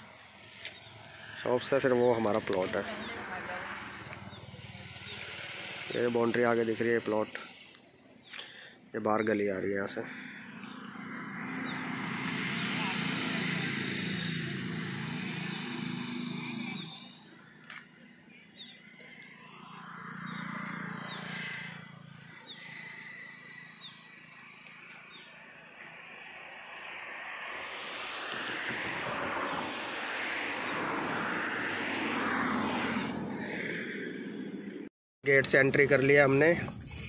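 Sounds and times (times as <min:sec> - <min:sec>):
vehicle engine hum: 0:00.0 - 0:08.7, 0:09.8 - 0:34.9
broad rushing noise: 0:09.9 - 0:34.8.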